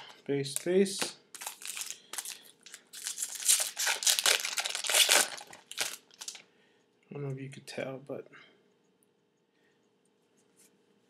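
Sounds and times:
card pack wrapper tearing: 0.5s - 6.4s.

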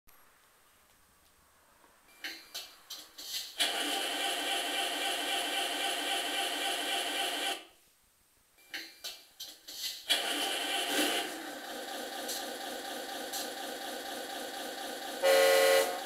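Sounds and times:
engine cranking bursts: 3.5s - 7.6s, 10.1s - 15.2s.

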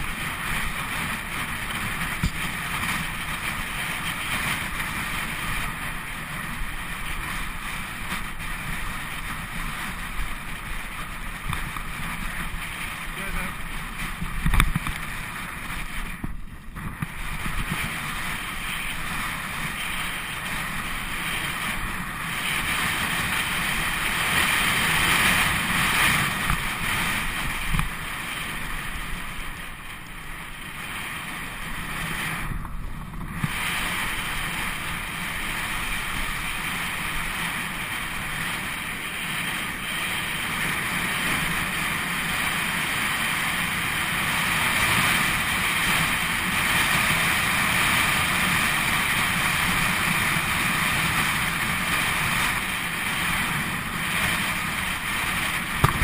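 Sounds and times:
bike tyres rolling on tarmac: 0.0s - 56.0s
wind rushing over microphone: 0.0s - 56.0s.

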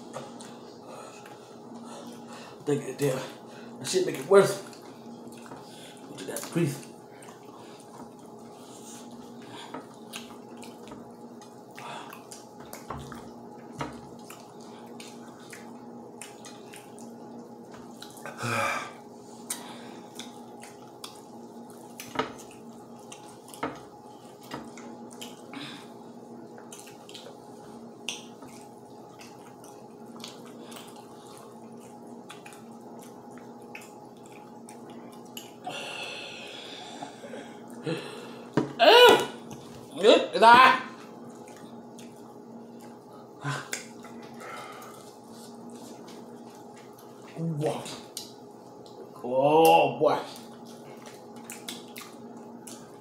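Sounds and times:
people chewing: 0.0s - 3.8s, 4.5s - 39.9s, 41.0s - 49.2s, 50.3s - 53.0s
wet mouth smacks: 51.0s - 52.8s.

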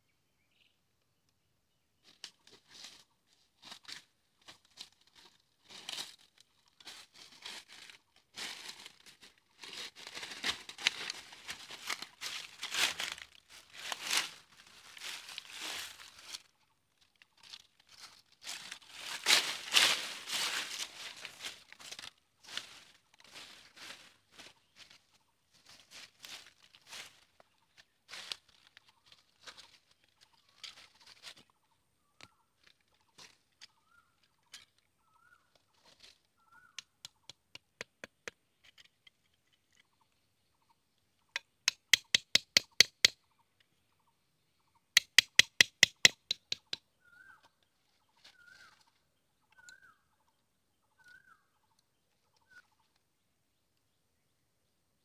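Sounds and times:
machete knocking on bamboo: 41.4s - 43.2s, 45.0s - 46.8s.

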